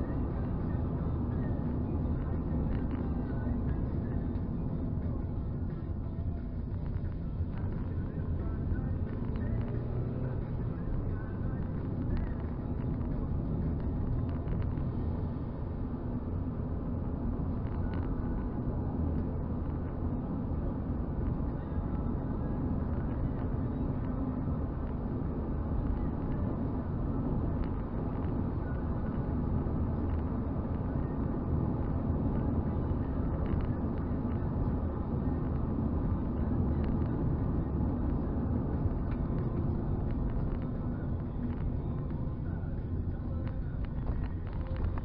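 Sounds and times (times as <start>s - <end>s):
car engine and tyre rumble: 0.0s - 45.0s.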